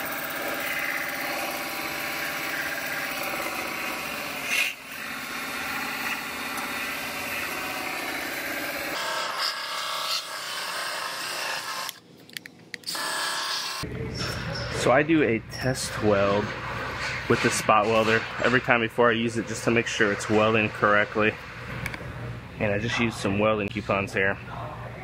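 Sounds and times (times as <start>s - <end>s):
belt sander on sheet metal: 0.0s - 11.9s.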